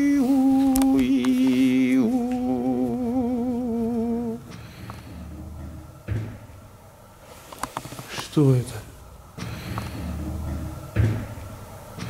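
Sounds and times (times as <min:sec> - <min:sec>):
person humming: 0:00.0 - 0:04.5.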